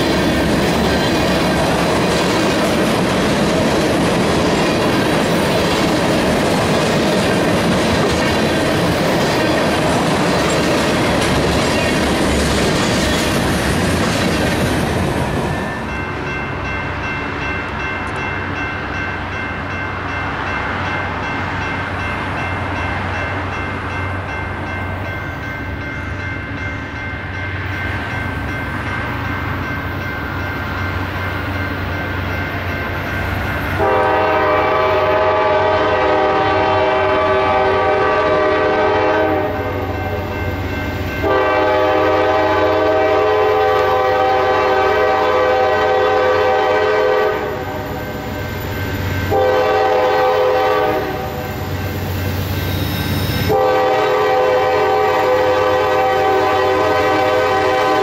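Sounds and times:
freight train passing: 0.0 - 58.0
locomotive air horn: 33.8 - 39.7, 41.2 - 47.8, 49.3 - 51.5, 53.5 - 58.0.

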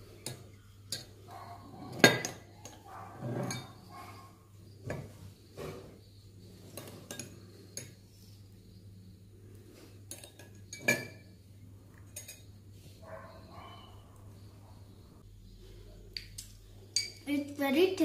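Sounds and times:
metal spoons clinking on glass bowls: 0.2 - 1.2, 1.9 - 3.9, 6.7 - 8.0, 10.1 - 11.3, 12.0 - 12.6, 16.2 - 17.2.

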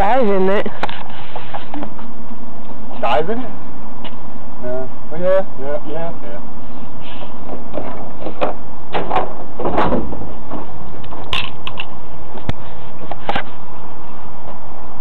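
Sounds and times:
dumpster lid banging shut: 7.8 - 10.6.

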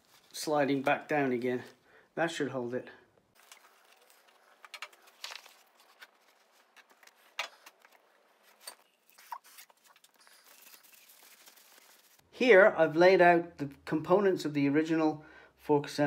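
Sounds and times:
gloved hands rustling paper towel: 0.0 - 1.8, 3.4 - 12.2.

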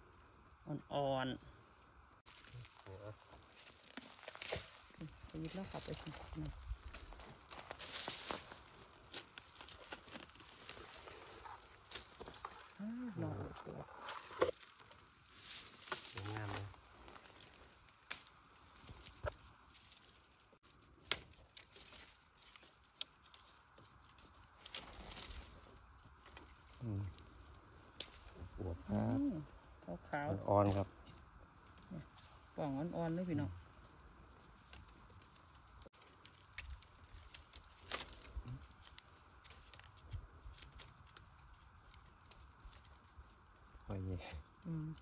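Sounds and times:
dry twigs and leaves crackling: 0.4 - 45.0
sharp twig crack: 14.4 - 20.4, 21.0 - 26.5, 27.9 - 28.3, 34.6 - 43.2.

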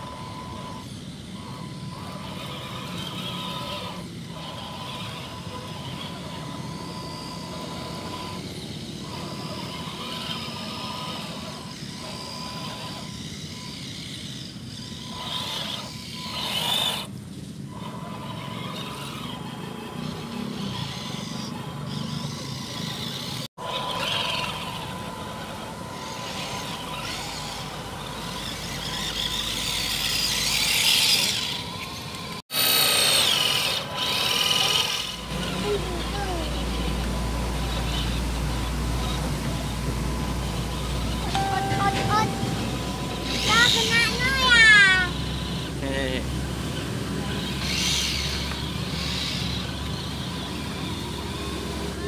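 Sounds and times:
toy truck electric motor whining: 0.0 - 52.0.

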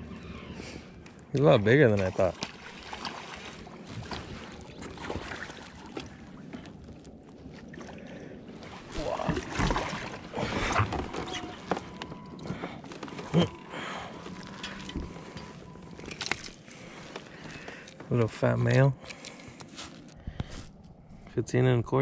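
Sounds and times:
water splashing: 1.8 - 17.0
handling noises: 9.1 - 21.0.

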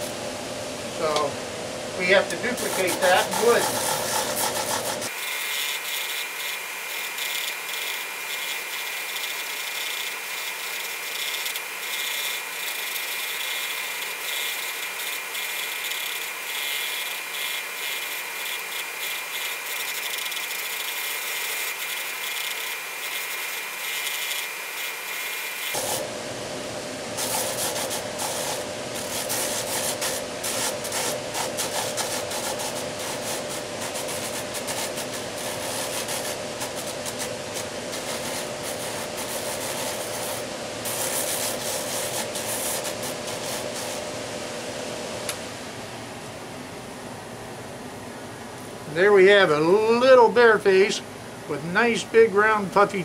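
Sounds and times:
drum sander rasping on wood: 2.0 - 26.1, 27.1 - 44.1.

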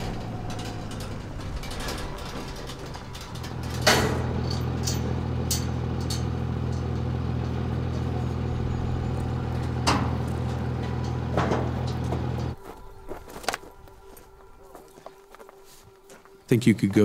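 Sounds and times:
metal gate clanks: 0.0 - 12.6
vehicle engine idling: 0.0 - 12.7.

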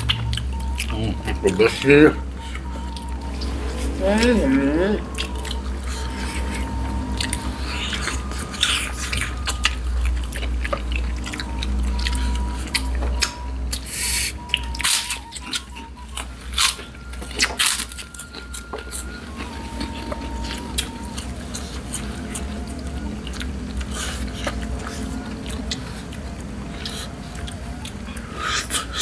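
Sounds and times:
chewing with smacking clicks: 0.0 - 29.0
steady low hum: 0.0 - 29.0.

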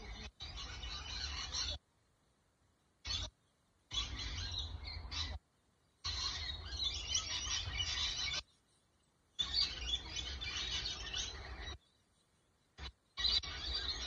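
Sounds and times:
parrots chattering: 0.0 - 1.8, 3.0 - 3.3, 3.9 - 5.4, 6.0 - 8.5, 9.4 - 11.8, 12.8 - 14.0.

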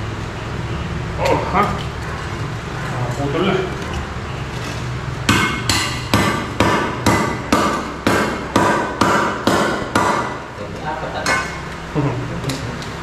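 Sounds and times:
hammer knocking on concrete block: 5.3 - 10.4.

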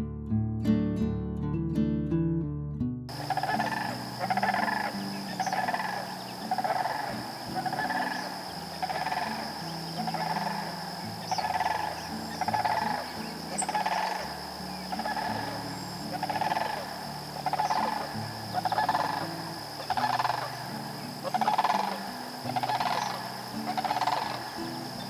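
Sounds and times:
frogs calling in pulsed trills: 3.1 - 25.0
high-pitched insect drone: 3.1 - 25.0.

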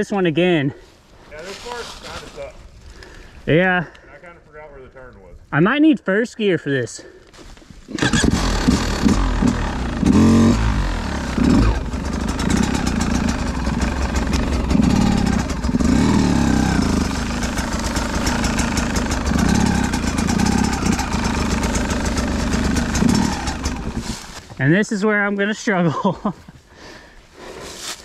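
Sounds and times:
dirt bike engine revving: 7.9 - 24.4.

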